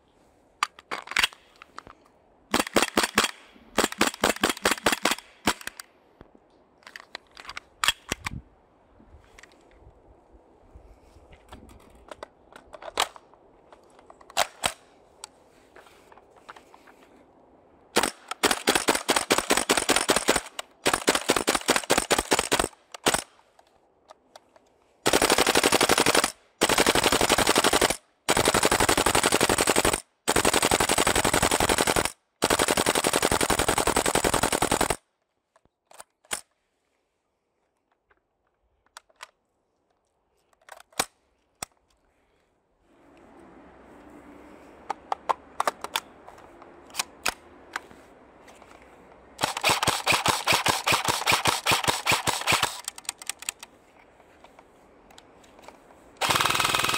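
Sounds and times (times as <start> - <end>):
airsoft rifles firing: 2.5 - 5.8, 17.9 - 23.4, 25.0 - 35.0, 49.4 - 53.0, 56.2 - 56.9.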